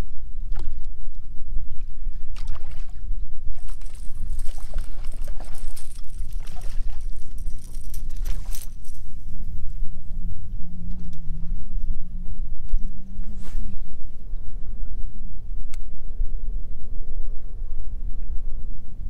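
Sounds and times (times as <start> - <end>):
steady low rumble: 0.0 - 19.0
fishing reel whirring: 3.6 - 9.1.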